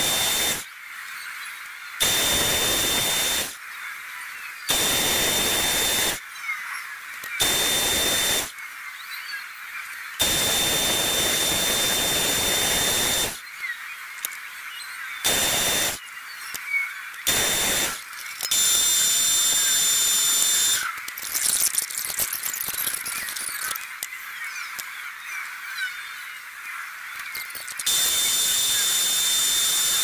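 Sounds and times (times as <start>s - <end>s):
lathe drilling brass with whistle: 0.0s - 0.6s, 2.0s - 3.5s, 4.7s - 6.2s, 7.4s - 8.5s, 10.2s - 13.4s, 15.2s - 16.0s, 17.2s - 23.7s, 27.4s - 30.0s.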